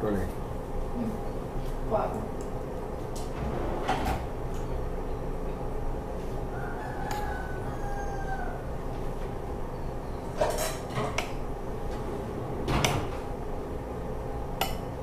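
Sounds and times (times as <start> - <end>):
steady background hum: 0.0 - 15.0.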